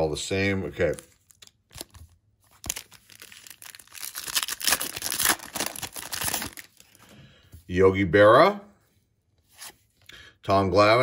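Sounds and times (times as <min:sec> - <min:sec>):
foil wrapper tearing and crinkling: 0:00.8 - 0:07.0.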